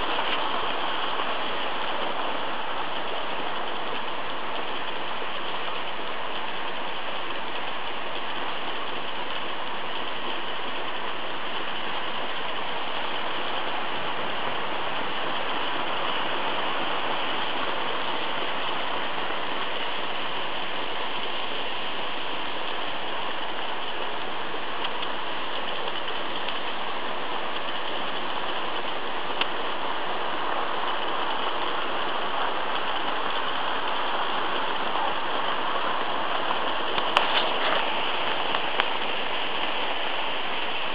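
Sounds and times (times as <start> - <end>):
model trains whirring on track: 0.0 - 40.9.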